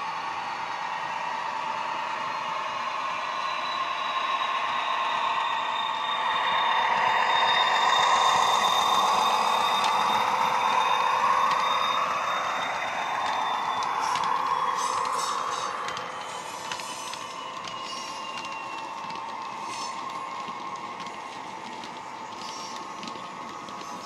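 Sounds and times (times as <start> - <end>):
model running gear on track: 5.4 - 24.0.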